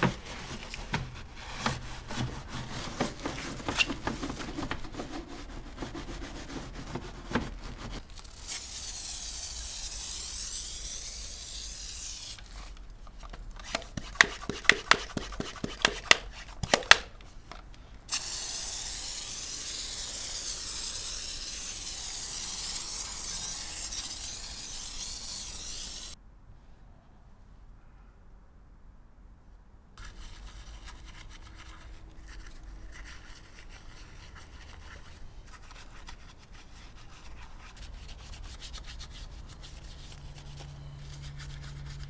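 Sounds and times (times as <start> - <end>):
spray hiss: 8.4 - 12.4, 18.1 - 26.2.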